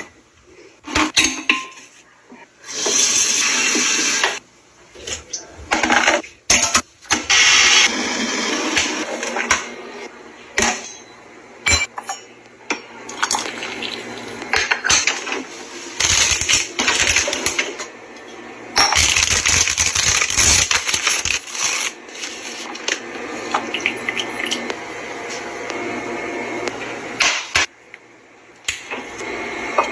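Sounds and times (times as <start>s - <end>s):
plastic packets rustling: 19.0s - 22.9s.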